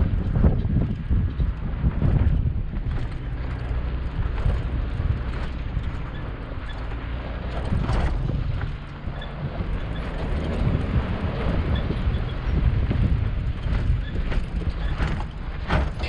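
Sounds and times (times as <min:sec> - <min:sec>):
truck engine running: 0:00.0 - 0:16.0
wind buffeting microphone: 0:00.0 - 0:16.0.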